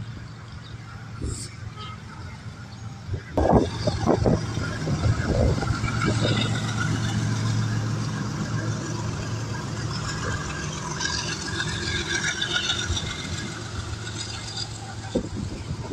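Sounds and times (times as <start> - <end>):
diesel locomotive hum: 0.0 - 15.9
train wheels rattling and screeching: 0.0 - 15.9.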